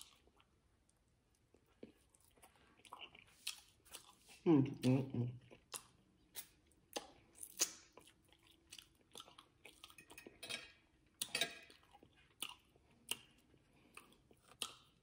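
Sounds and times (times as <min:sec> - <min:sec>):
person chewing food: 0:00.0 - 0:15.0
wet mouth smacks and clicks: 0:05.7 - 0:08.0, 0:14.5 - 0:14.9.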